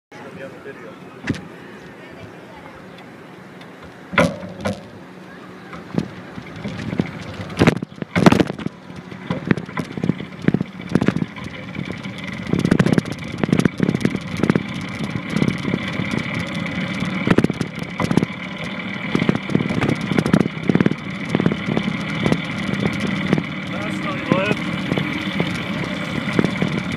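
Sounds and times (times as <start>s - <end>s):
longboard wheels rolling on pavement: 1.3s - 26.9s
paddle knocking and scraping ground: 5.8s - 26.9s.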